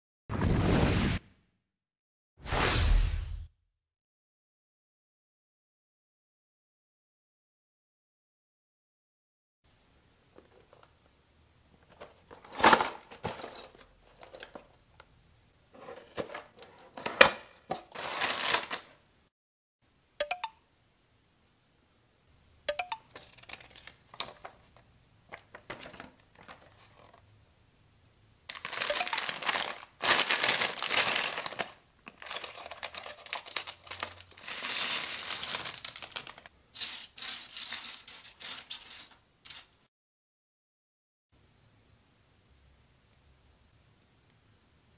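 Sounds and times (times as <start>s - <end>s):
cardboard and paper rustling: 11.8s - 14.8s, 15.7s - 19.0s, 23.1s - 27.2s, 28.5s - 36.5s
plastic bricks clattering on table: 15.8s - 19.0s, 23.1s - 27.2s, 28.5s - 39.7s.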